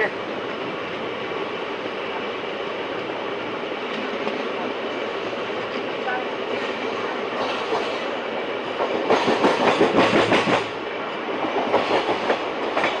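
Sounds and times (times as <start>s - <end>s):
train running noise: 0.0s - 13.0s
train wheels clattering over joints: 7.4s - 13.0s.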